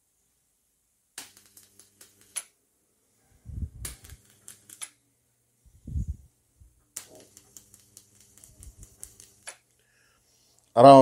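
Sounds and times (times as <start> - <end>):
electric arc crackling: 1.2 - 2.6, 3.6 - 5.0, 6.8 - 9.8
low hum: 5.6 - 6.8.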